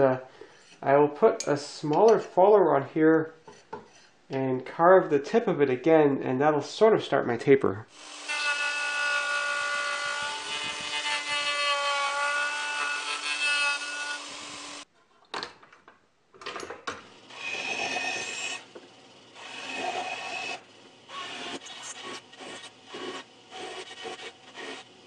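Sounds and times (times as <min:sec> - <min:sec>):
bandsaw cutting wood: 0:07.9 - 0:14.9, 0:17.3 - 0:18.7, 0:19.4 - 0:25.0
router motor carving wood: 0:08.0 - 0:14.8, 0:17.3 - 0:18.8, 0:19.4 - 0:25.0.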